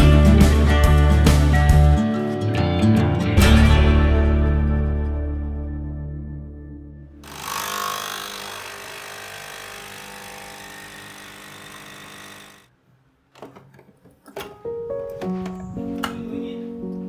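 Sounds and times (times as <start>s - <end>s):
coffee machine pump buzzing: 7.2s - 12.7s.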